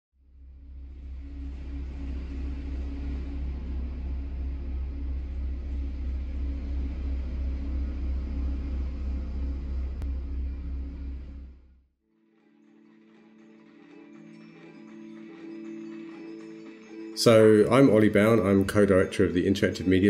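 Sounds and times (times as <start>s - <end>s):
deep droning rumble: 0.2s - 11.9s
faint wavering tones: 0.3s - 11.8s.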